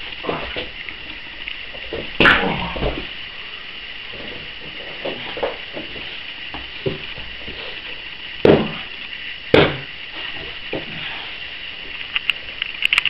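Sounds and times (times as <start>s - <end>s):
wrestling thuds and hits: 8.4s - 8.9s, 9.5s - 9.9s.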